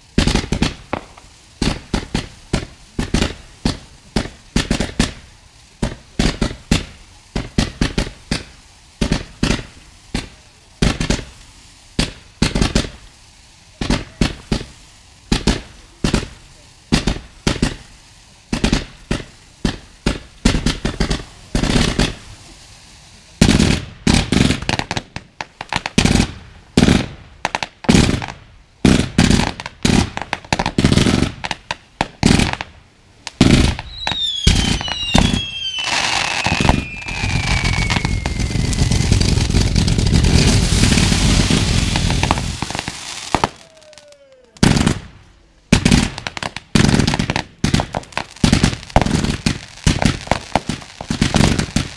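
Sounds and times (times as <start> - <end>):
firework crackling: 0.0 - 51.9
fireworks bangs: 0.0 - 51.9
falling firework whistles: 33.4 - 45.0.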